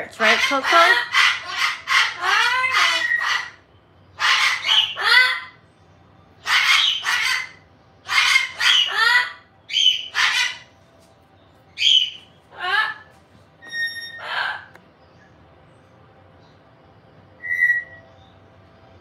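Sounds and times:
cockatoo screeching: 0.2s - 3.6s, 4.2s - 5.6s, 6.4s - 10.7s, 11.8s - 14.8s.

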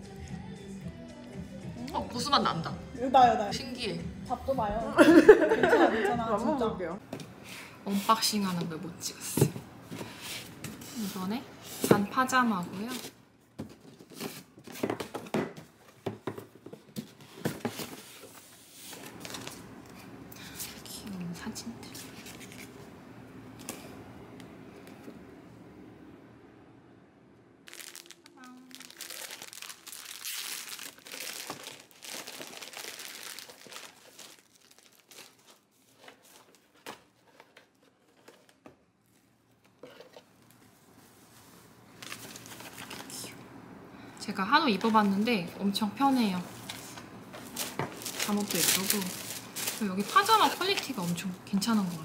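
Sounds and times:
packing paper rustling: 17.0s - 19.8s, 21.9s - 22.8s, 27.7s - 39.2s, 40.9s - 43.4s, 46.5s - 52.0s
plastic bag crinkling: 27.7s - 36.7s, 41.9s - 43.3s, 46.6s - 52.0s
fabric rustling: 46.4s - 52.0s.

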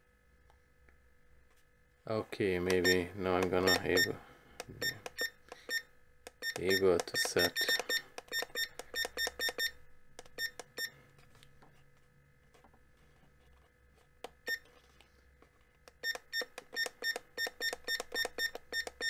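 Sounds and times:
digital alarm clock beeping: 2.7s - 4.2s, 4.8s - 9.8s, 10.4s - 10.9s, 16.0s - 19.0s.

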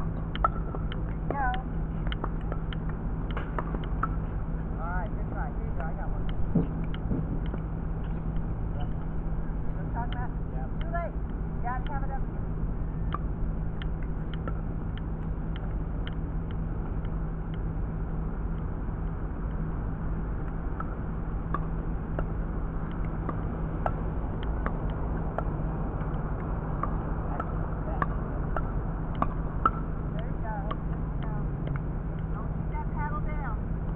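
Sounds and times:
constant low hum: 0.0s - 33.9s
balls bouncing on hard court: 0.2s - 4.3s, 13.1s - 17.6s, 20.8s - 33.5s.

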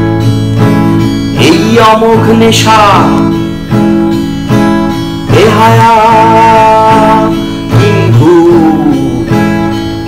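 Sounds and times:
strummed acoustic guitar: 0.0s - 10.0s
man singing: 1.3s - 3.6s, 5.2s - 9.6s.

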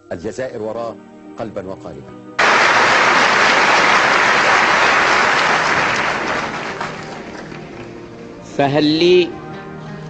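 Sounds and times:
audience applauding: 2.4s - 8.0s.

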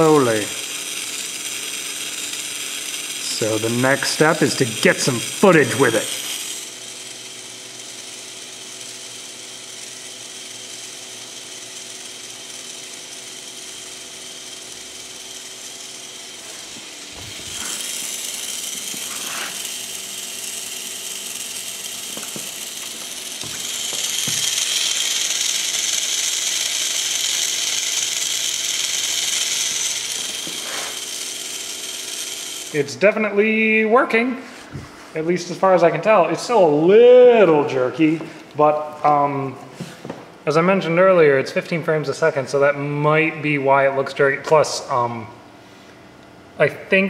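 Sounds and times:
toy motor and plastic gears running: 0.0s - 33.0s.

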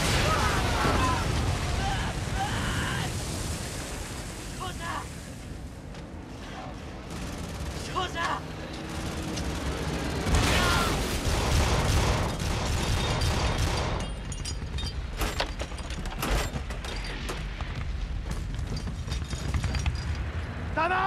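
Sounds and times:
gunfire and impacts: 8.8s - 15.4s.

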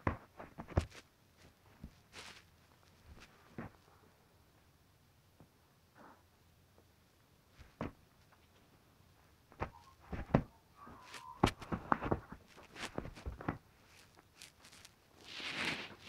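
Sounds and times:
soft thumps and knocks: 7.6s - 8.0s, 9.5s - 10.5s, 11.4s - 13.7s
faint squeak: 9.7s - 11.7s.

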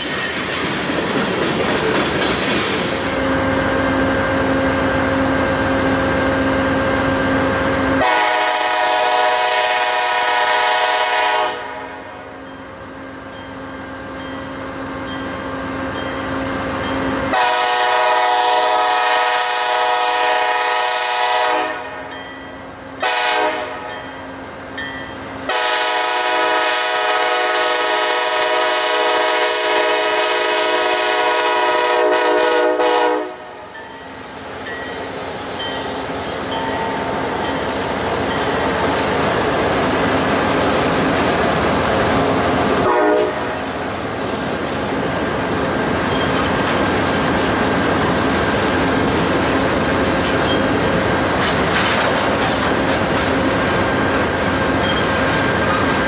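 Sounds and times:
diesel locomotive engine running: 0.0s - 56.0s
train wheels rumbling on rails: 0.0s - 56.0s
train chord horn blasts: 8.0s - 12.4s, 17.3s - 22.1s, 23.0s - 24.0s, 25.4s - 33.6s, 42.8s - 43.7s.

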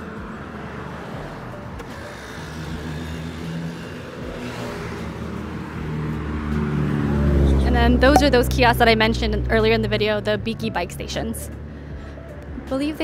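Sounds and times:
street traffic: 0.0s - 13.0s
car passing by: 0.2s - 8.0s.

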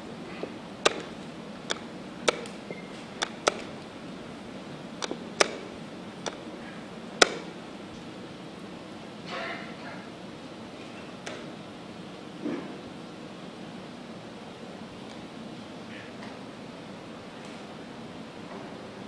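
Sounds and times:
chess pieces clacking on board: 0.3s - 7.6s
chess clock button clicks: 0.8s - 3.8s, 5.0s - 6.4s, 7.2s - 7.5s.

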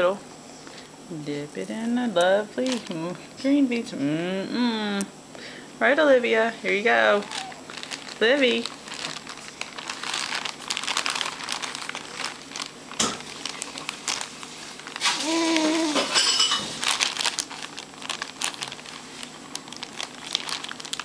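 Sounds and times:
plastic crackling and rustling: 2.6s - 3.2s, 6.8s - 21.0s
baby humming: 7.0s - 7.8s, 15.0s - 16.2s.

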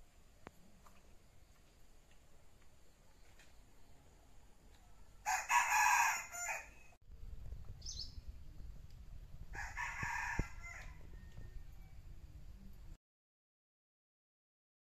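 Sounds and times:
rooster crowing: 5.0s - 7.0s, 9.5s - 12.0s
small bird chirping: 7.7s - 8.3s.

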